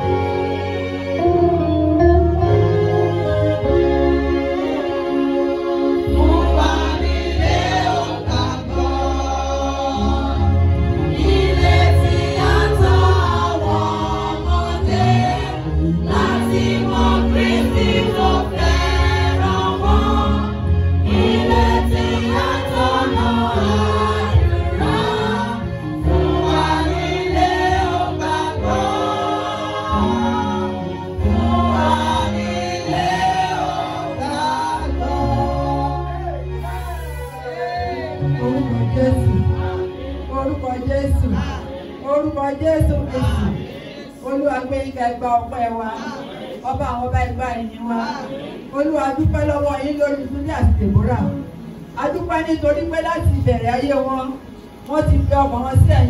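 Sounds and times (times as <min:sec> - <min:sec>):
guitar: 0:00.0 - 0:06.2
choir singing gospel: 0:00.0 - 0:53.6
keyboard: 0:00.0 - 0:56.0.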